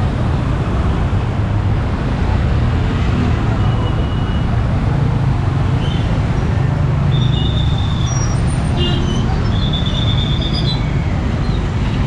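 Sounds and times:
motorcycle and car engines: 0.0s - 12.0s.

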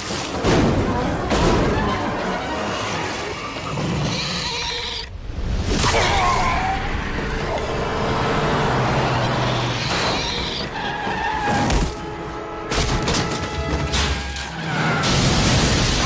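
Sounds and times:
dramatic music: 5.7s - 16.0s.

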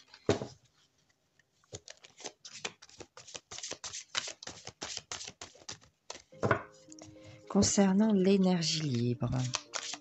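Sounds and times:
cards being shuffled: 1.6s - 7.2s, 8.7s - 10.0s.

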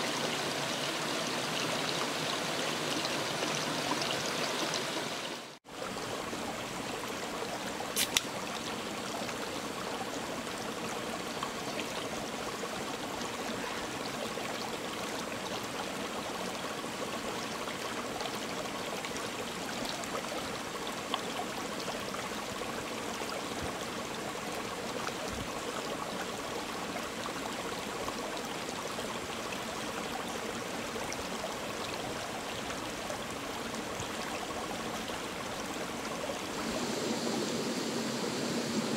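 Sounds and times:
stream running over rocks: 0.0s - 38.9s
sharp click: 8.0s - 8.3s.

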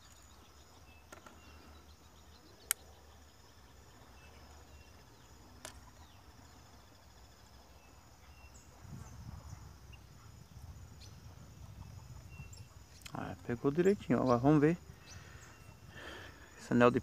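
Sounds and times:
sharp click: 5.6s - 5.8s.

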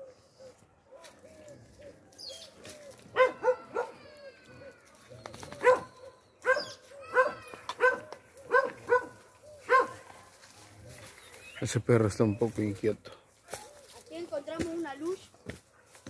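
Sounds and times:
dog barking: 3.1s - 4.0s, 5.6s - 10.1s.

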